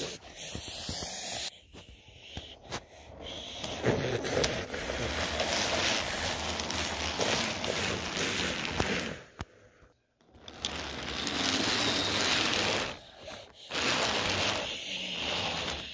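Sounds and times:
toy train whirring: 0.0 - 1.5, 2.3 - 9.4, 10.2 - 15.9
wheels clicking on track: 10.3 - 13.0.

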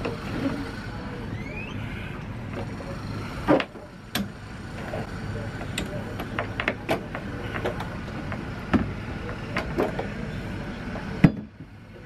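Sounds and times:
steady background noise: 0.0 - 12.0
outboard motor knocking and clunking: 3.4 - 11.8.

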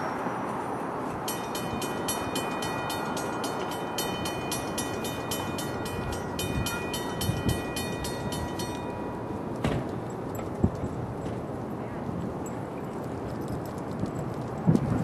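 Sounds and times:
railroad warning bell ringing: 0.0 - 10.7
wind rumble on microphone: 4.0 - 15.0.

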